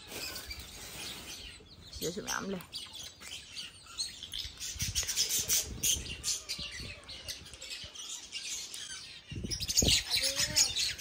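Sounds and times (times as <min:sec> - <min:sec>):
parrots chirping and squawking: 0:00.0 - 0:11.0.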